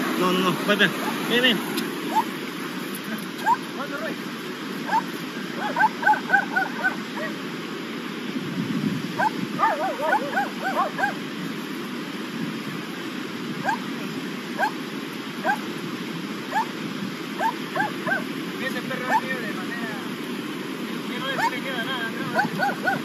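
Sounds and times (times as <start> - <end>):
river rushing: 0.0 - 23.0
dog yapping: 2.1 - 2.3, 3.4 - 3.6, 4.9 - 7.4, 9.2 - 11.2, 13.6 - 13.8, 15.4 - 15.6, 17.4 - 18.2, 21.4 - 21.6, 22.4 - 23.0.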